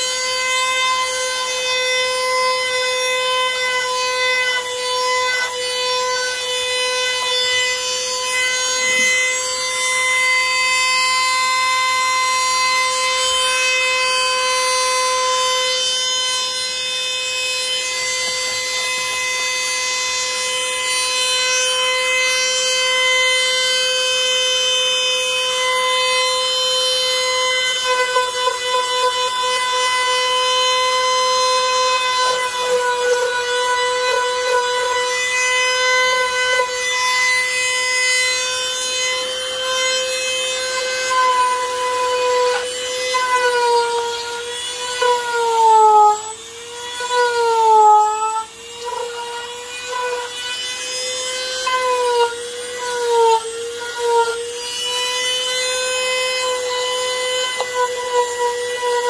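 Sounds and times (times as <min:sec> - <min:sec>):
power tool whining: 0:00.0 - 0:59.0.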